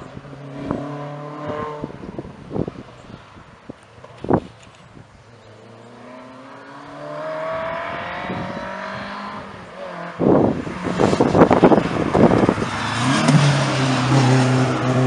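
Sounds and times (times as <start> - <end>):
car engine accelerating uphill: 5.4 - 15.0.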